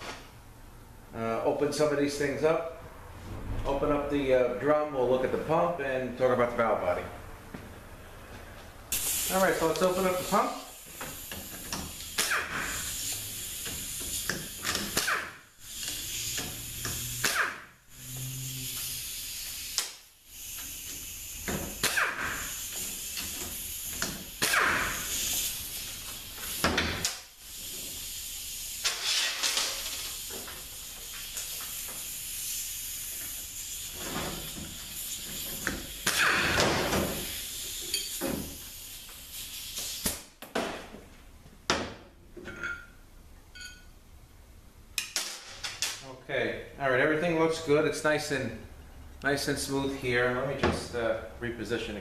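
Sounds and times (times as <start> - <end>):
steady hiss: 8.9 - 40.4
metal parts scraping and clinking: 28.8 - 30.2.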